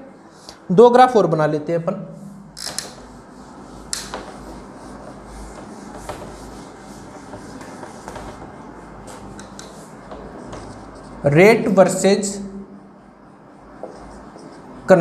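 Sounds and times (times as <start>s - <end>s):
duster scrubbing whiteboard: 2.6s - 11.3s, 13.7s - 14.9s.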